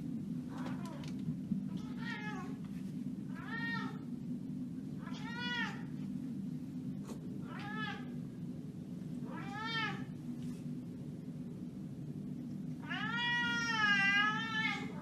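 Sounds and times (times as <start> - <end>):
steady low hum: 0.0 - 15.0
cat meowing: 12.8 - 15.0.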